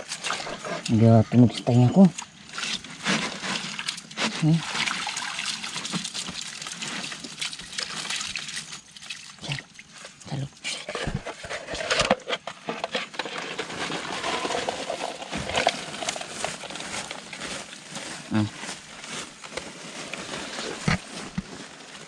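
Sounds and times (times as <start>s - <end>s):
water dripping and sloshing: 2.1s - 10.4s
clicks and rustles of wet net: 2.2s - 10.2s, 10.9s - 22.0s.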